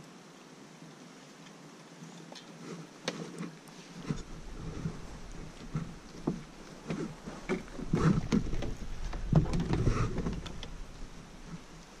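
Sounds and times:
thumps against plastic kayak hull: 4.0 - 10.9.

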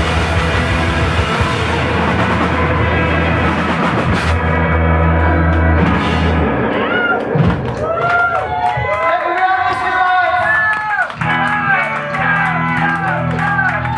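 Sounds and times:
held low bass note: 0.0 - 7.7
distorted electric guitars: 0.0 - 8.1, 9.7 - 13.9.

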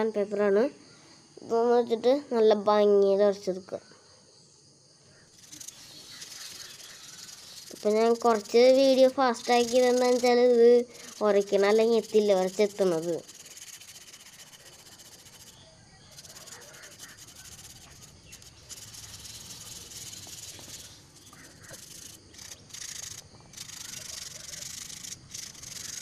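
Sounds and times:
sandpaper rasping on putty: 5.4 - 26.0.

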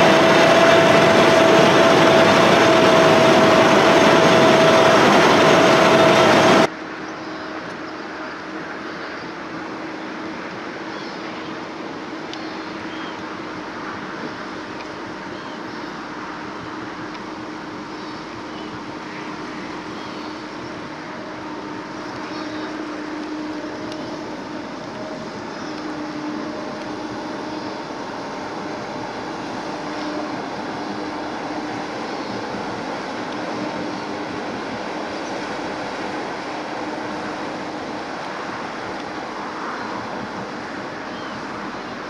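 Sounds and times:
truck engine humming: 0.0 - 6.7, 13.3 - 42.0
water churning: 0.0 - 6.7, 18.8 - 42.0.

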